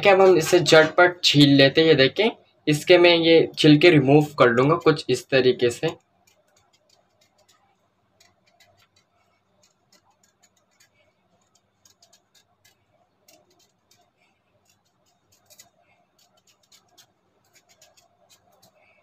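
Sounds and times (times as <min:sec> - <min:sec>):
knife paring mango skin: 0:04.0 - 0:19.0.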